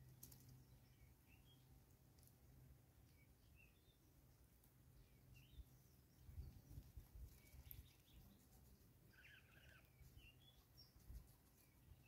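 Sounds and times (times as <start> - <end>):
birds twittering: 0.5 - 1.8, 3.1 - 4.2, 4.9 - 11.0
bird chirps: 3.1 - 4.1, 5.0 - 12.0.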